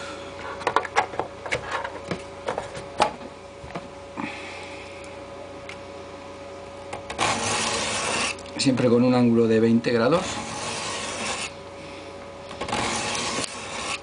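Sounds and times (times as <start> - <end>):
knife scraping on sharpening plate: 10.2 - 11.5.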